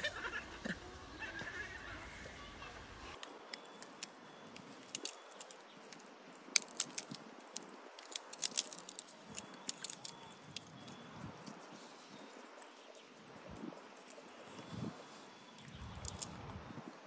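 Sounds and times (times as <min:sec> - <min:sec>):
faint sharp clicks and crackles: 0:03.2 - 0:14.7.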